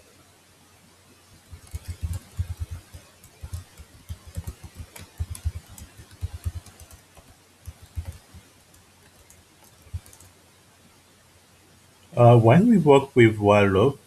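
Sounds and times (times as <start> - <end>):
typing on computer keyboard: 1.5 - 10.3.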